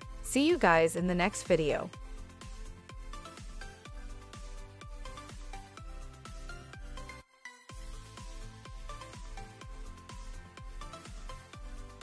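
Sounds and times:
kick drum beat: 7.7 - 12.0.

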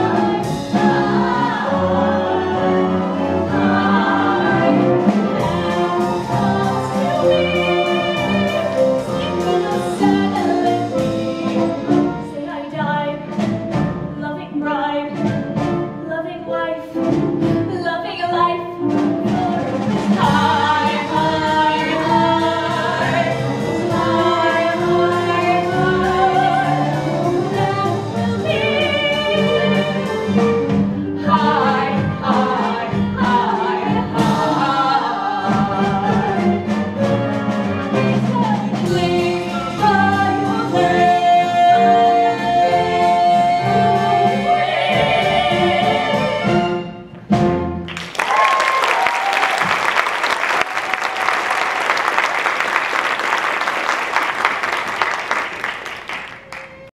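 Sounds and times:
other voices singing: 0.0 - 12.0, 19.4 - 30.2, 31.2 - 46.9
instrumental accompaniment: 0.0 - 48.1
audience applauding: 47.9 - 56.9.

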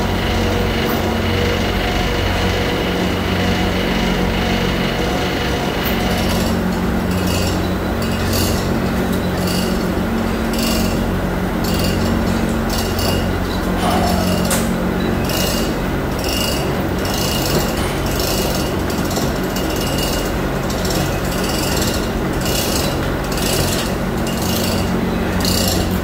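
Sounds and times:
low machinery hum: 0.0 - 26.0
hoist chain rattling and clicking: 5.9 - 26.0.

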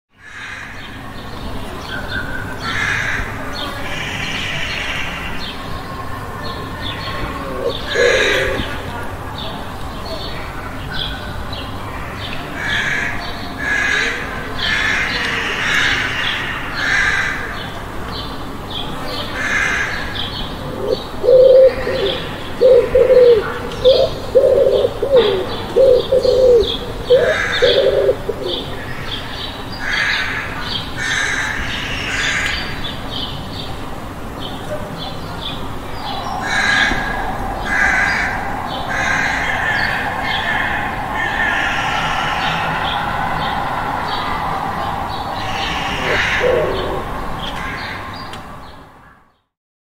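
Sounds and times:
birds chirping: 0.6 - 16.9, 17.6 - 48.9
dove cooing: 7.2 - 9.0, 20.6 - 28.8, 36.0 - 47.8.

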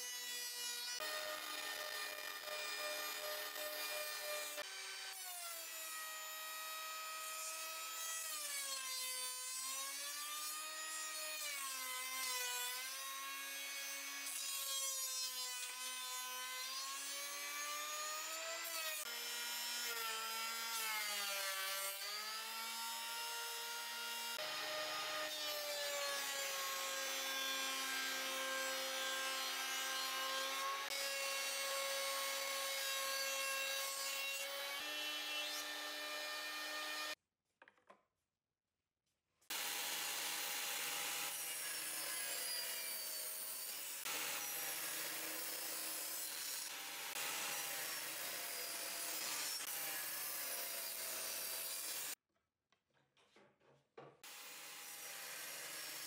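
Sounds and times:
thickness planer cutting wood: 15.6 - 37.2.

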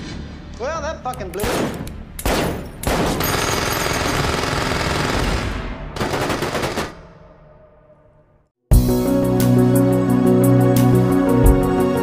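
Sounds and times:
gunfire echo: 1.4 - 4.2
automatic gunfire: 1.4 - 7.0.

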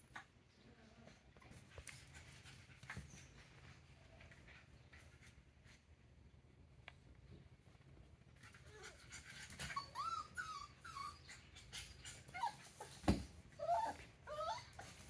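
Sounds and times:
puppies whimpering and whining: 8.6 - 15.0
thump: 13.0 - 13.3.

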